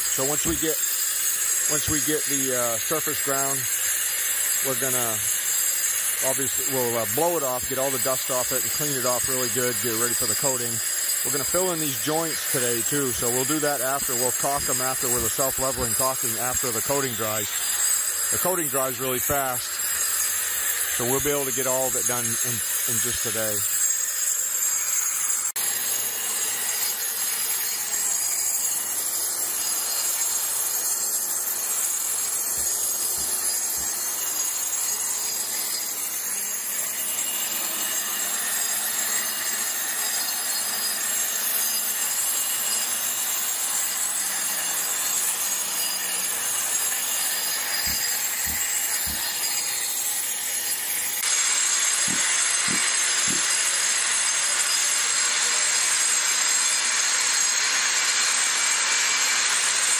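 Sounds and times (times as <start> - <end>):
angle grinder grinding concrete: 0.0 - 59.9
shop vacuum running: 47.4 - 54.1.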